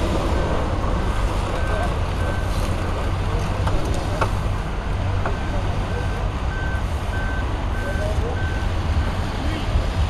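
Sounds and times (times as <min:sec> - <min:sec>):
low engine rumble: 0:00.0 - 0:10.0
reversing alarm beeping: 0:01.5 - 0:02.7, 0:05.2 - 0:09.3.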